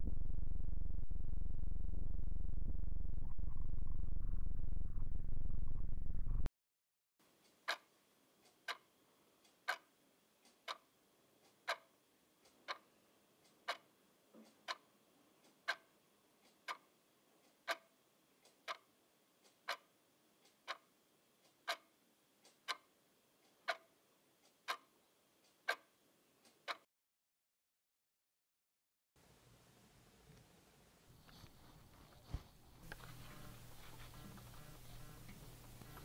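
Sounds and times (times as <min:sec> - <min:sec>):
clock ticking: 0:07.6 - 0:10.8, 0:11.4 - 0:25.9, 0:26.5 - 0:26.8.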